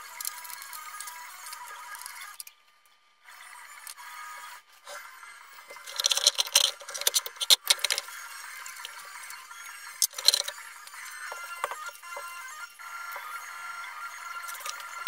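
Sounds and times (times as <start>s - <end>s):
scraping and rattling clicks: 5.7s - 12.5s, 14.4s - 15.0s.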